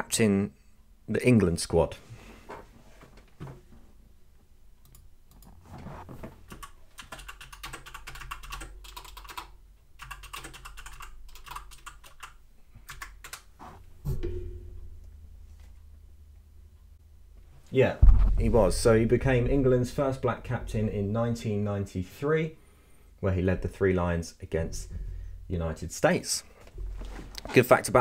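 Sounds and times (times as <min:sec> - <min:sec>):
keyboard typing: 0:06.5 - 0:13.5
loud thump: 0:14.0 - 0:15.1, 0:18.0 - 0:19.7.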